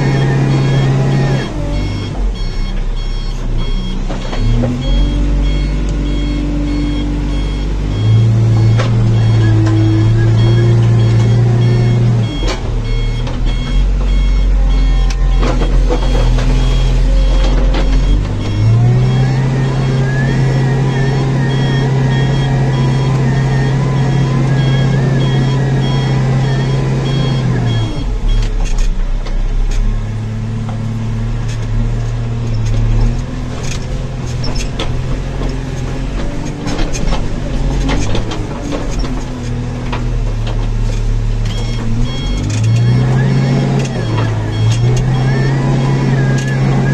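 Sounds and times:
electronic beeper pulsing: 0.0s - 15.5s
diesel engine running: 0.0s - 46.9s.

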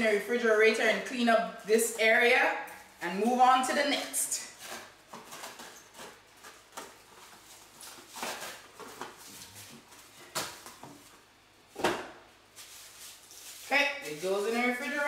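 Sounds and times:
plastic wrap rustling: 4.0s - 11.3s, 12.4s - 15.0s.

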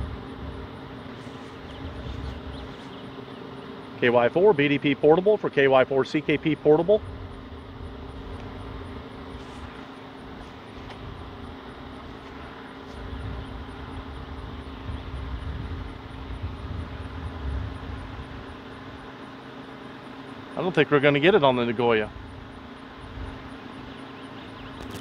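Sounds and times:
low gusty rumble: 0.0s - 0.9s, 10.3s - 18.6s
faint low drone: 0.0s - 19.2s.

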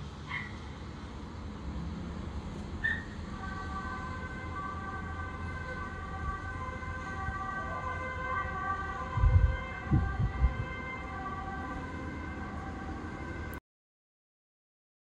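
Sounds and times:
emergency vehicle sirens: 1.9s - 13.6s.

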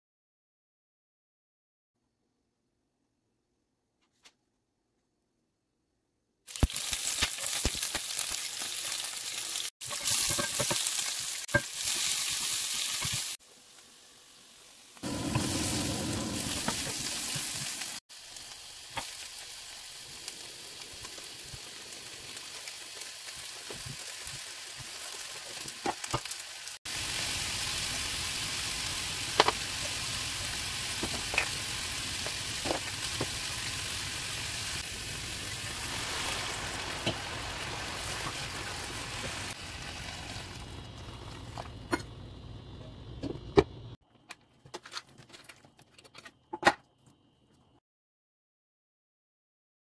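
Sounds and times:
oil sizzling in a frying pan: 6.5s - 42.6s.

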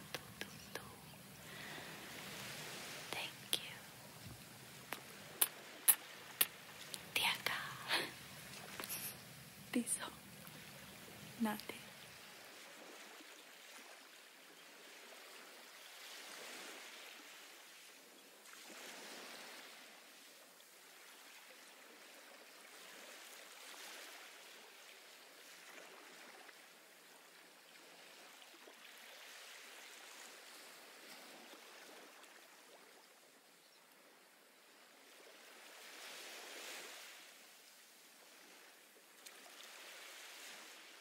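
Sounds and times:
ocean waves washing in: 1.2s - 27.0s, 34.6s - 41.0s.

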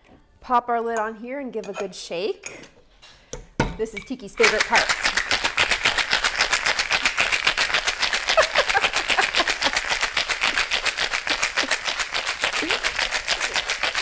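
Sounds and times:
ice rattling in cocktail shaker: 4.4s - 14.0s.

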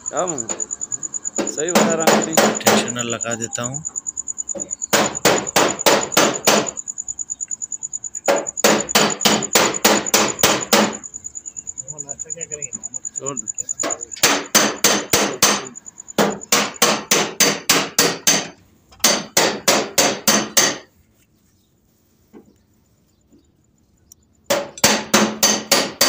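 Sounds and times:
hammering: 0.2s - 0.7s, 1.3s - 3.3s, 4.5s - 6.8s, 8.2s - 11.1s, 12.0s - 20.9s, 24.5s - 26.0s.

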